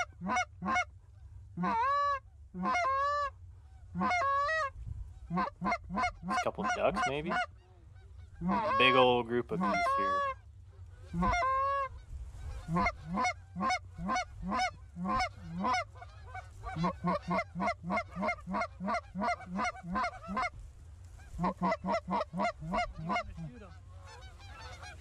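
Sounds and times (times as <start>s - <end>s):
goose honking and clucking: 0.0s - 25.0s.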